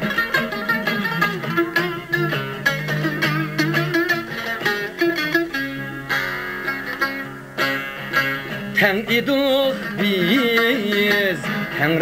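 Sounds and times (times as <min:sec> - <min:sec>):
plucked lute: 0:00.0 - 0:12.0
man singing with vibrato: 0:08.6 - 0:12.0.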